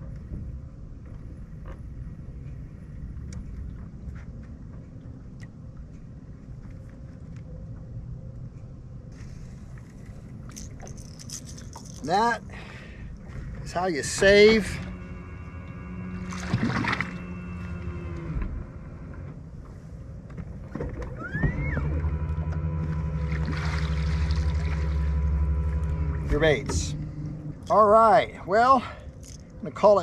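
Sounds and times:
faint steady hum: 0.0s - 30.0s
anchor motor humming: 14.0s - 19.4s, 21.1s - 28.1s.

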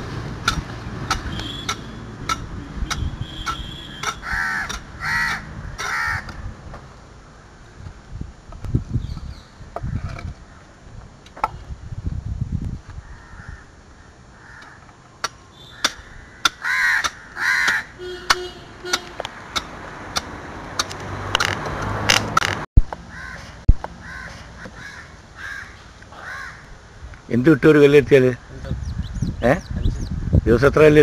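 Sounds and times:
crows cawing: 4.0s - 6.4s, 13.0s - 15.0s, 15.6s - 18.0s, 23.1s - 26.8s.

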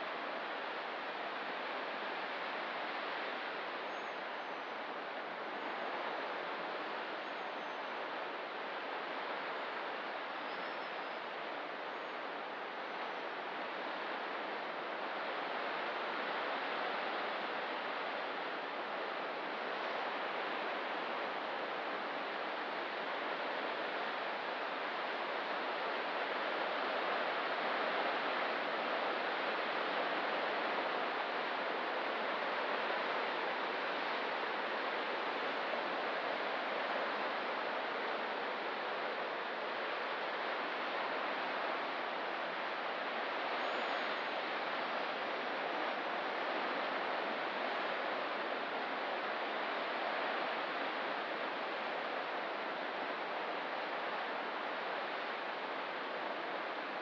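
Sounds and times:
faint high bird chirps: 10.4s - 11.2s, 43.6s - 44.3s
ocean surf washing: 13.4s - 57.0s.

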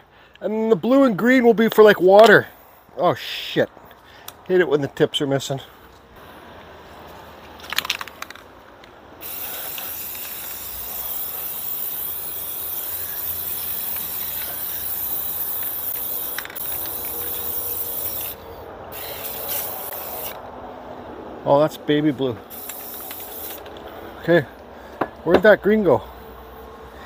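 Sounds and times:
spray can rattle: 7.5s - 20.4s, 22.5s - 24.0s
spray paint can hissing: 9.2s - 20.4s, 22.4s - 24.0s.

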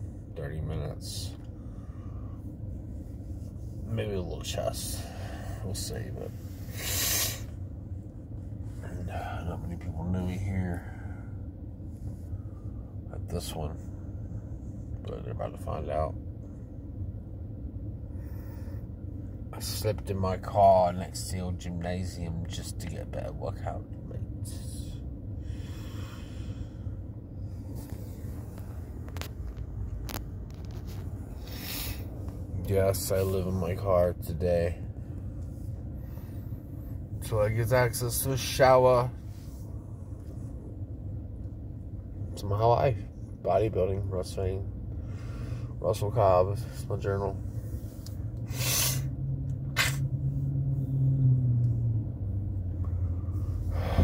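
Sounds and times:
car cabin hum: 0.0s - 54.0s
short breath: 25.4s - 27.0s
short hiss: 48.5s - 49.1s.

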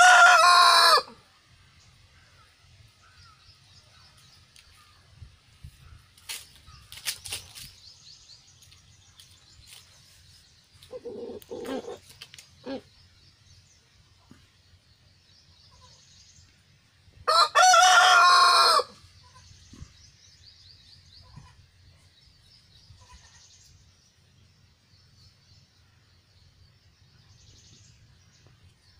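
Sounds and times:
rooster crowing: 0.0s - 1.2s, 17.3s - 19.0s
faint high chirping: 2.4s - 16.6s
low clucking calls: 10.8s - 13.0s.

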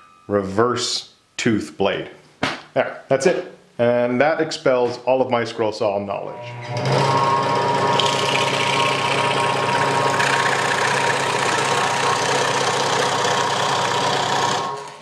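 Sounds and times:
scroll saw motor hum: 6.4s - 15.0s.

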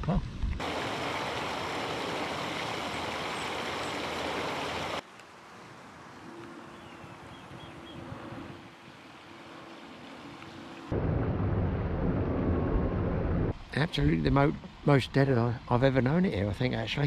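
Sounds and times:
faint high bird chirps: 6.2s - 8.1s
rush of wind: 6.8s - 9.2s.

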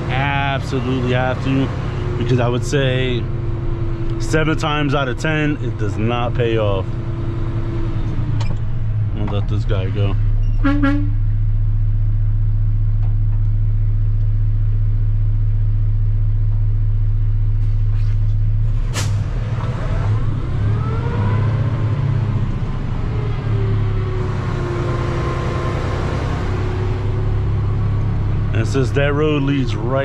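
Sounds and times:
truck engine idling: 0.0s - 18.6s, 22.0s - 30.0s.

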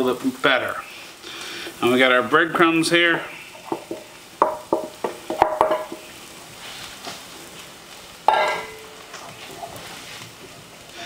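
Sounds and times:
faint sizzle: 0.0s - 11.0s
wooden spatula stirring: 1.5s - 7.7s, 9.0s - 10.8s
metal bowl tapping against pan: 3.7s - 6.0s, 8.3s - 8.9s.

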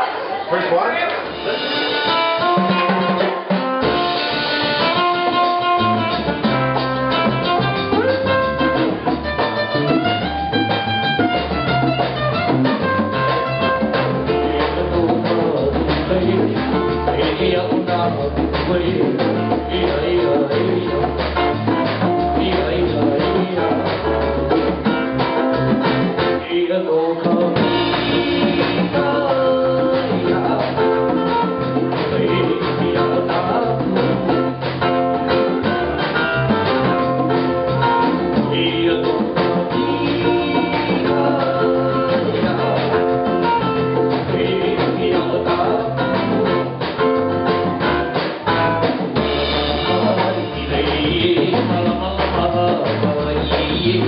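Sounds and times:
congas: 0.0s - 54.0s
drum kit: 1.0s - 54.0s
electric bass: 3.7s - 26.6s, 27.5s - 54.0s
person singing lead: 26.4s - 34.5s, 38.4s - 43.4s, 44.0s - 46.6s.

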